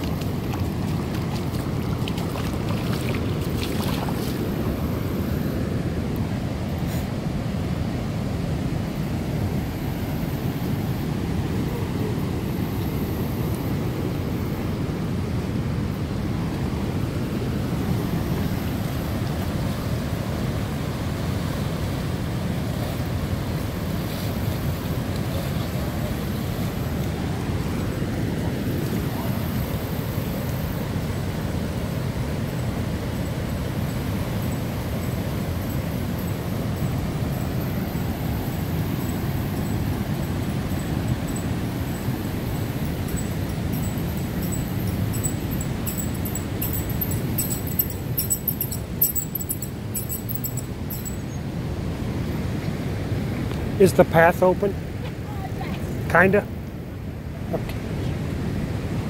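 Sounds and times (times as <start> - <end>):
floodwater rushing over spillway: 0.0 - 46.9.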